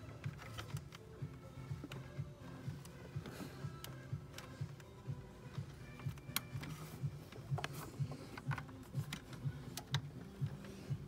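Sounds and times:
plastic hoses clicking and rattling: 0:00.0 - 0:11.0.

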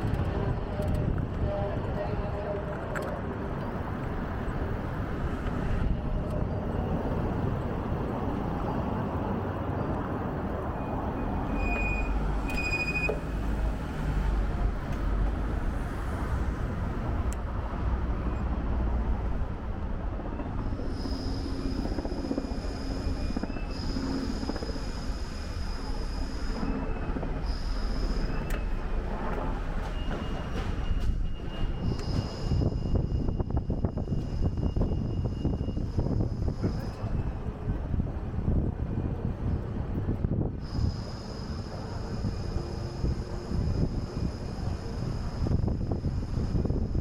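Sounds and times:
city street traffic: 0:00.0 - 0:47.0
short high squeaks: 0:10.8 - 0:13.4, 0:21.0 - 0:28.9, 0:29.8 - 0:37.3
thin high whine: 0:20.4 - 0:29.0, 0:29.8 - 0:37.4, 0:40.6 - 0:47.0.

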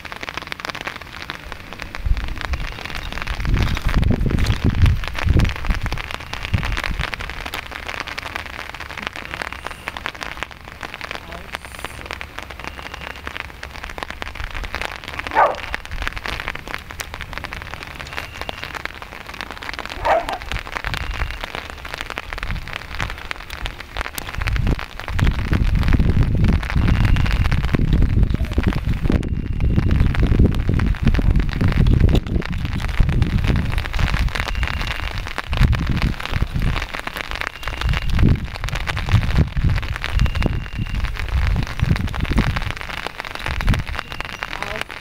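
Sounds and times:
steady rain pattering: 0:00.0 - 0:45.0.

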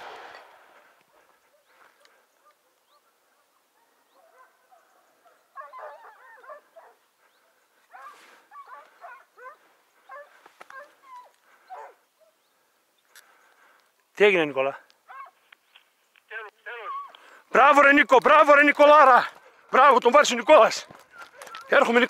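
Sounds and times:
distant hounds baying: 0:00.8 - 0:13.7, 0:15.0 - 0:15.6, 0:20.6 - 0:22.0.

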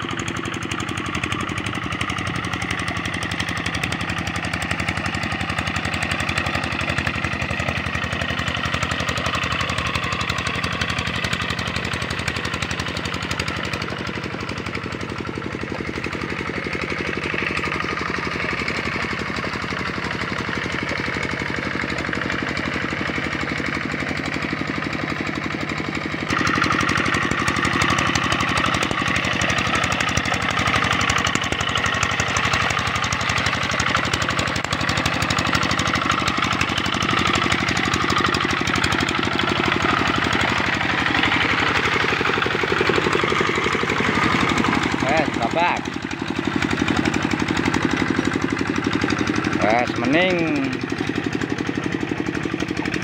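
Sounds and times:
diesel engine chugging: 0:00.0 - 0:53.0.

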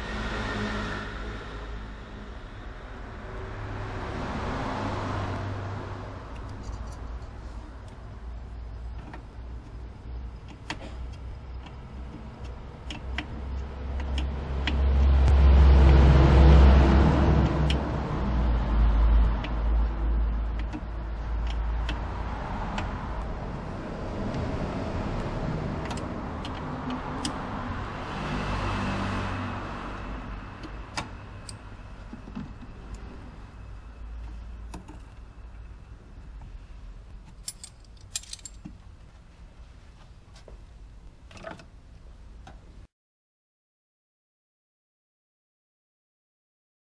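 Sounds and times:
vehicle passing by: 0:00.0 - 0:07.8, 0:13.3 - 0:35.7.

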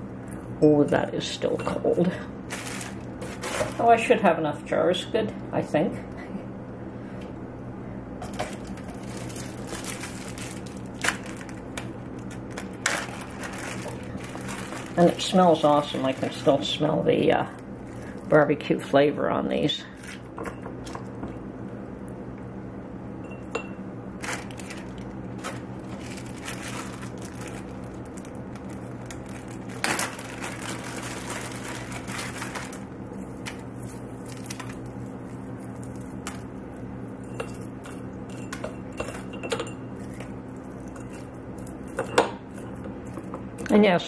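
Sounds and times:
steady low hum: 0:00.0 - 0:44.0
plastic bag rustling: 0:02.4 - 0:04.1, 0:08.2 - 0:16.8, 0:20.0 - 0:20.4, 0:24.2 - 0:36.6.

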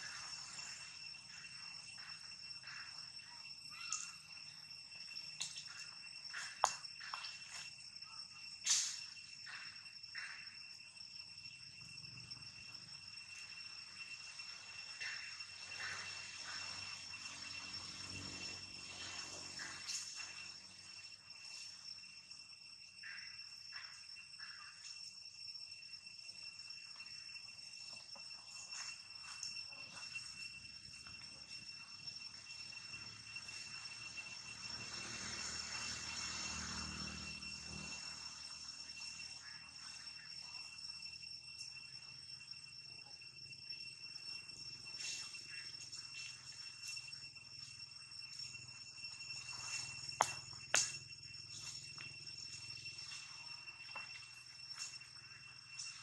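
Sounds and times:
high-pitched insect drone: 0:00.0 - 0:56.0.

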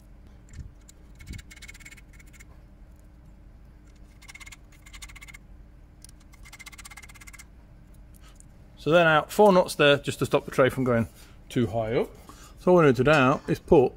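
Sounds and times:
nuts spinning on threads ticking: 0:00.8 - 0:02.5, 0:04.1 - 0:05.4, 0:06.1 - 0:07.5.

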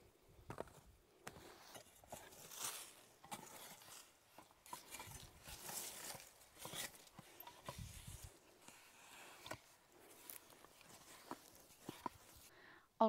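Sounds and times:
hoe chopping and scraping soil: 0:00.5 - 0:12.5.

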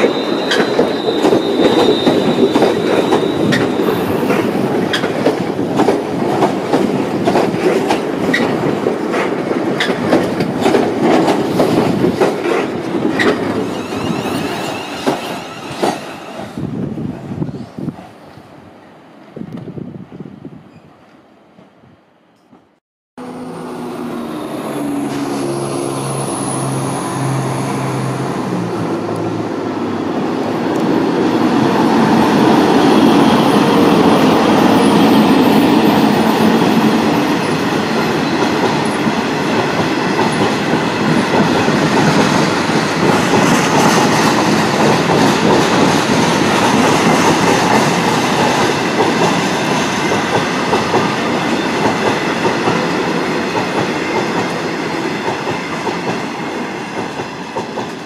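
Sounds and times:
diesel locomotive engine droning: 0:23.2 - 0:43.3.

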